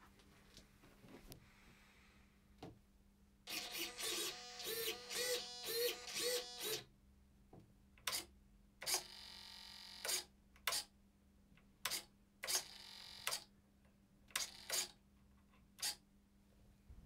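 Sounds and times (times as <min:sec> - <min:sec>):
servos whirring: 0:03.5 - 0:06.8.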